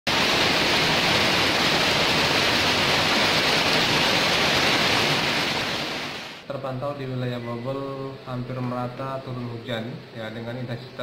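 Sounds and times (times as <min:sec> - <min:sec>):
rain falling on wet street: 0:00.1 - 0:06.4.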